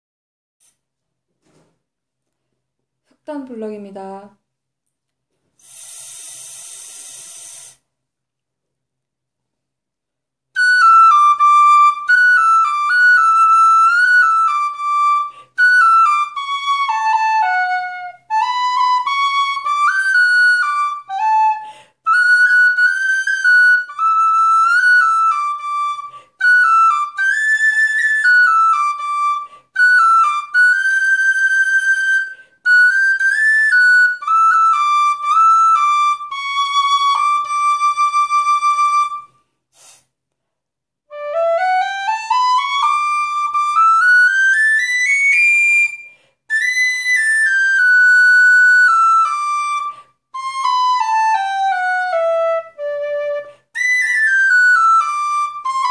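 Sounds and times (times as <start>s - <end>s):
tin whistle melody: 10.6s - 39.5s, 41.1s - 55.9s.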